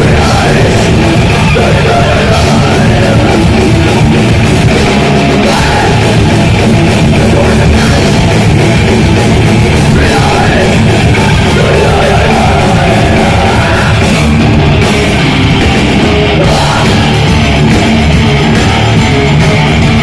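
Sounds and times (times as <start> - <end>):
bass guitar: 0.0 - 20.0
distorted electric guitar: 0.0 - 20.0
drum kit: 0.0 - 20.0.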